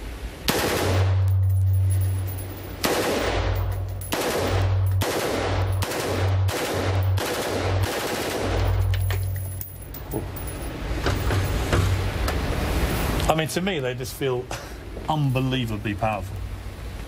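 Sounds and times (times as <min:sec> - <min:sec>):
sharp gunshot cracks: 0:00.5 - 0:01.3, 0:02.8 - 0:08.8.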